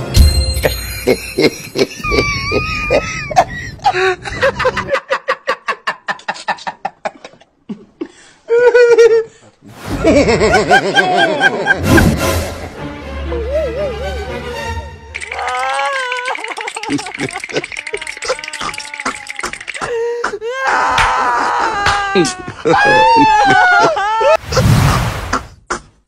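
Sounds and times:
person laughing: 0:00.6 - 0:07.9, 0:08.5 - 0:09.3, 0:09.9 - 0:12.2, 0:13.3 - 0:14.4, 0:15.4 - 0:20.2, 0:21.8 - 0:25.6.

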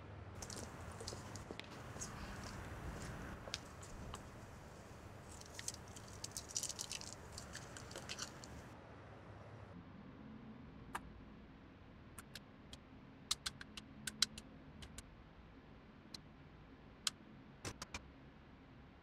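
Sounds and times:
faint low hum: 0:00.4 - 0:12.2.

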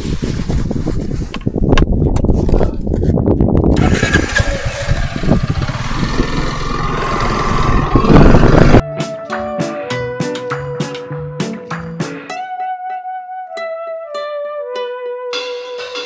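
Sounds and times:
wind noise on microphone: 0:00.0 - 0:08.8
scooter engine pulling away: 0:03.8 - 0:08.8.

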